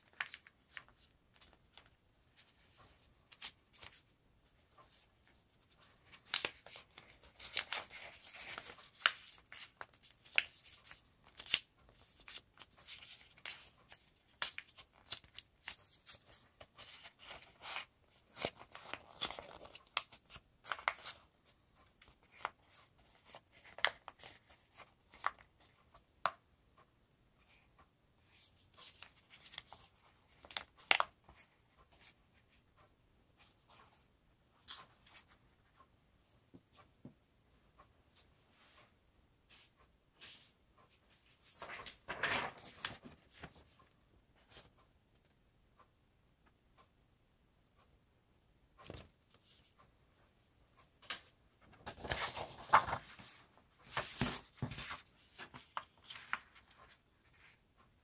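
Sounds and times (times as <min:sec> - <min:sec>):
paper crackling and rustling: 0:04.8 - 0:21.2, 0:41.4 - 0:43.7, 0:51.1 - 0:57.6.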